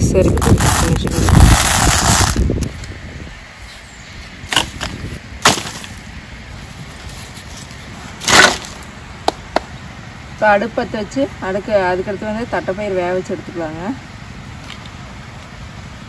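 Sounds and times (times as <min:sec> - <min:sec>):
firewood sticks cracking: 0:04.4 - 0:06.1, 0:07.0 - 0:09.7.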